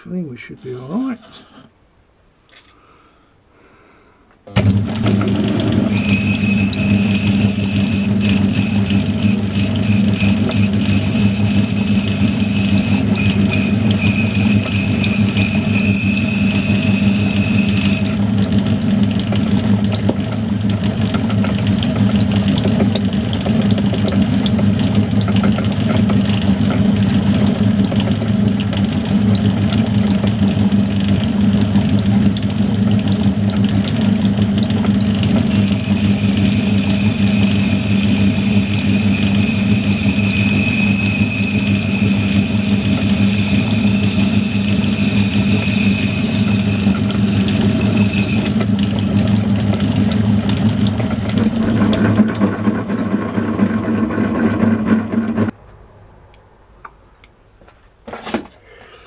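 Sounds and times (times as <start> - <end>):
metal lathe motor humming: 4.6 - 55.6
thin high whine: 35.6 - 48.6.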